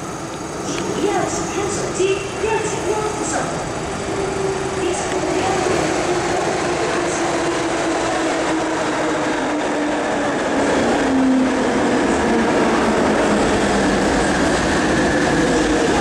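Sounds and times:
train running gear rumble: 0.0 - 16.0.

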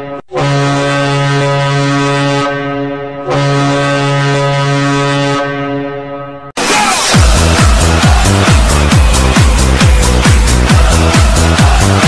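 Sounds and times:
goal horn blasts: 0.0 - 6.5.

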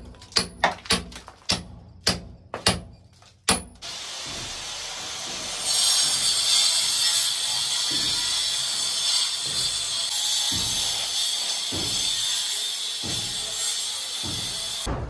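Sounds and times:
angle grinder cutting wall: 3.8 - 14.9.

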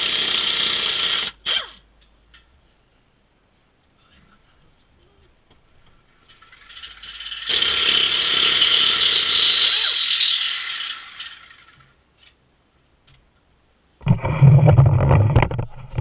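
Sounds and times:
air ratchet clicking rattle: 6.2 - 12.4.

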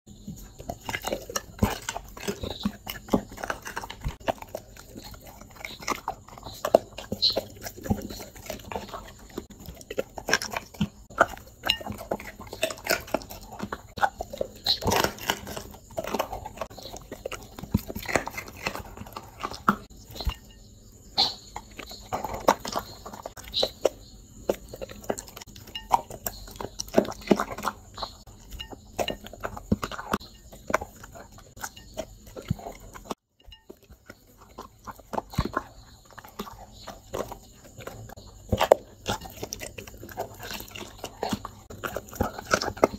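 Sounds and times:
dog crunching and chewing food: 0.1 - 42.9.

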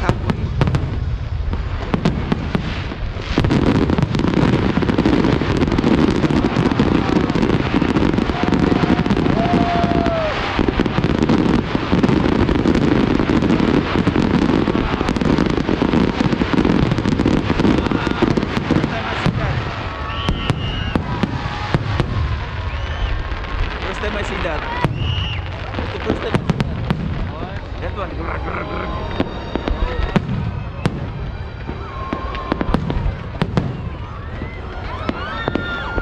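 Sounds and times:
fireworks crackling and banging: 0.0 - 36.0.

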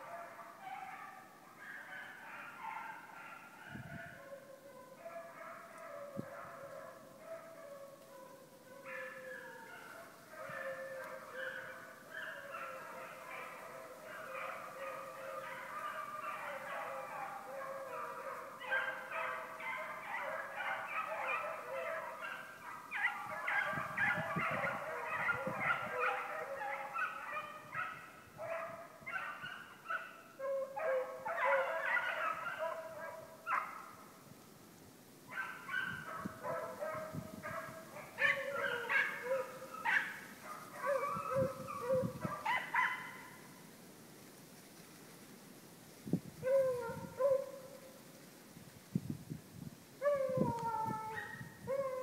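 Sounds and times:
hounds baying: 0.0 - 34.0, 35.3 - 43.4.

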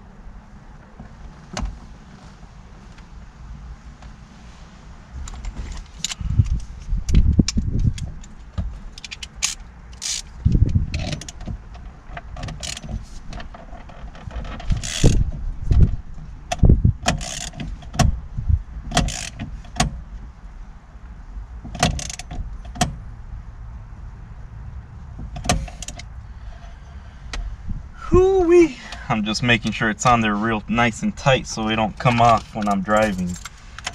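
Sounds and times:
metal parts and tools clinking: 32.1 - 33.9.

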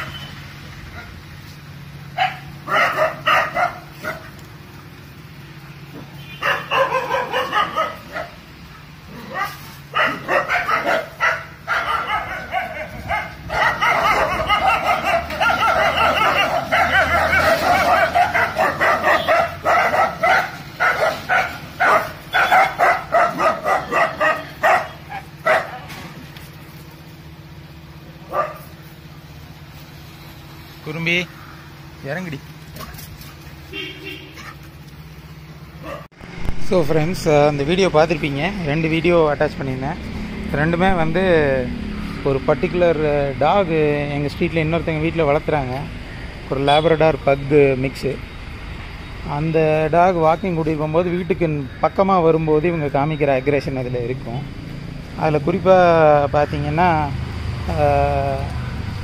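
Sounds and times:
dogs barking: 2.1 - 4.4, 6.3 - 26.2, 28.2 - 28.8, 32.7 - 34.8, 35.8 - 36.2.

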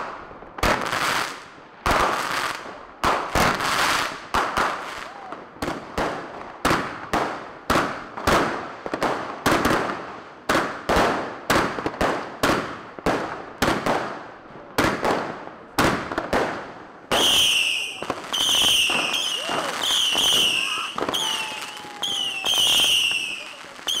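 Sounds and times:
firecracker bangs echoing: 3.0 - 24.0
high whistle: 17.2 - 24.0.

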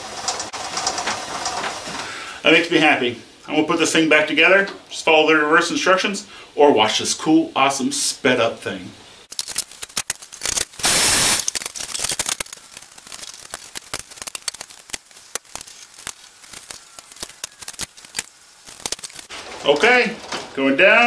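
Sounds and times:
burst of hiss: 1.8 - 2.6, 10.7 - 11.6.

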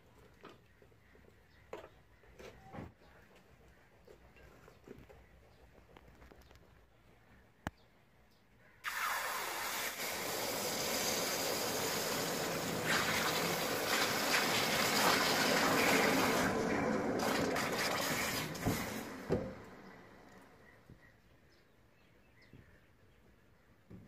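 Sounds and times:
water hissing on hot metal: 8.8 - 19.5.

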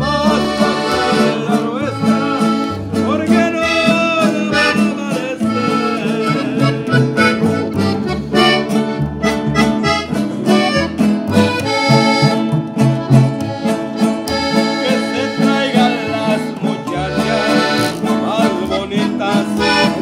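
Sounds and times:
man singing: 0.0 - 8.2, 10.1 - 11.1, 14.3 - 20.0
button accordion melody: 0.0 - 20.0
plucked double bass: 0.0 - 20.0
strummed acoustic guitars: 0.0 - 20.0.

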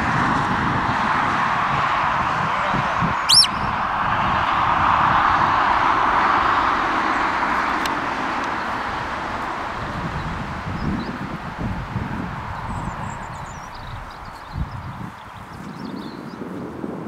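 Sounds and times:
distant road traffic rushing: 0.0 - 17.0
sharp whistle: 3.3 - 3.8.

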